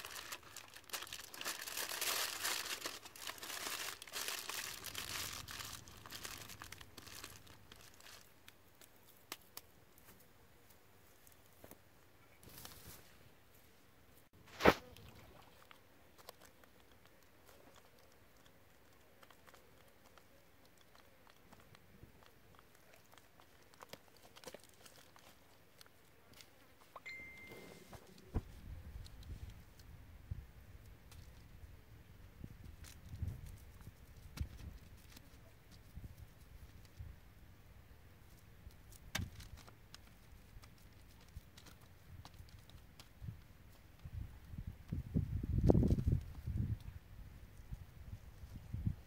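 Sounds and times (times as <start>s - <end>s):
aluminium foil crinkling: 0.0s - 9.4s, 15.6s - 26.5s, 32.7s - 36.0s, 38.7s - 44.1s
crackling of wet clay packing: 0.0s - 10.2s, 14.4s - 27.1s, 30.7s - 49.0s
thin whistle: 27.0s - 28.0s.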